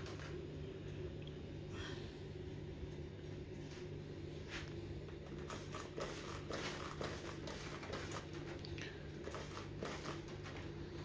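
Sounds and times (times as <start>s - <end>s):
faint steady hum: 0.0s - 11.0s
spray bottle hissing sprays: 5.4s - 8.6s, 9.2s - 10.6s.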